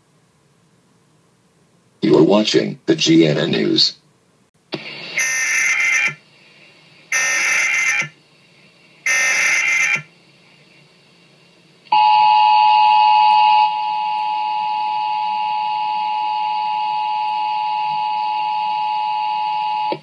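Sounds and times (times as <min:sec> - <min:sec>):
two-tone alarm: 0:05.2 - 0:06.2, 0:07.1 - 0:08.2, 0:09.1 - 0:10.1, 0:11.9 - 0:20.0.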